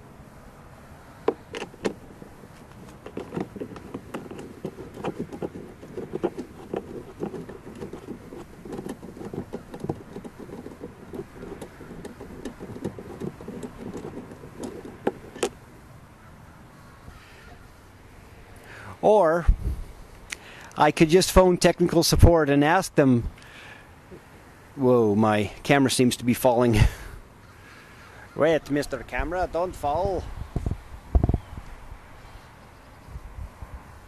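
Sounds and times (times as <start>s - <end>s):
hand tools clicking and knocking: 1.2s - 15.6s.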